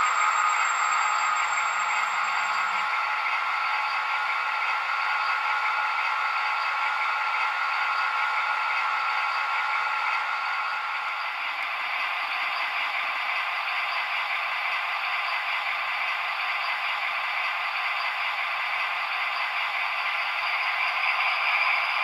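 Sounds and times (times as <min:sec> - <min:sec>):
model train rattling on track: 0:00.0 - 0:22.0.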